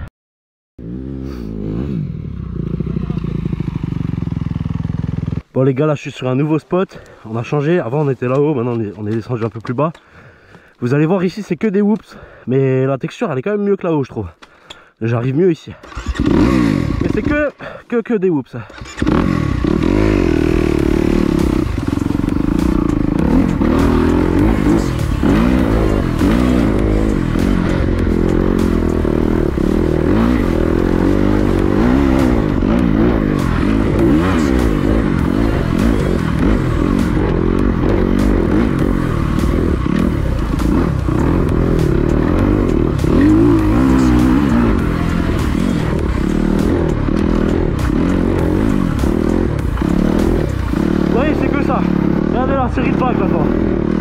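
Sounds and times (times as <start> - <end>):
motocross engine revving: 0.8 - 5.5, 15.8 - 17.5, 18.7 - 54.0.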